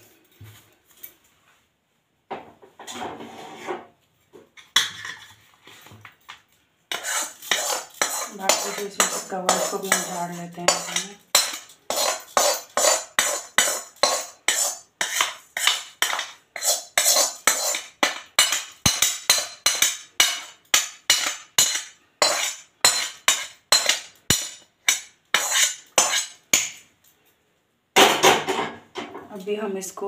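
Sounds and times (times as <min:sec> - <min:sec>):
knife scraping steel pan: 0:06.9 - 0:26.8.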